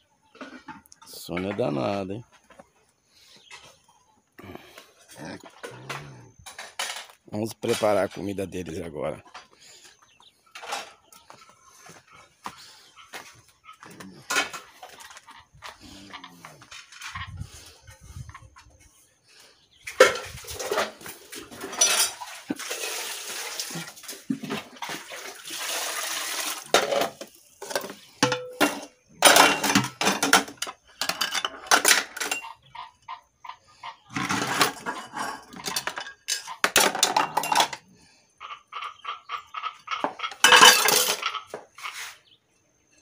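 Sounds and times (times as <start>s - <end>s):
metal pots clinking and scraping: 0.3s - 2.2s, 5.0s - 9.6s, 10.6s - 11.1s, 13.8s - 17.7s, 19.9s - 32.8s, 34.0s - 42.2s
liquid being poured: 22.2s - 24.2s, 24.8s - 26.7s.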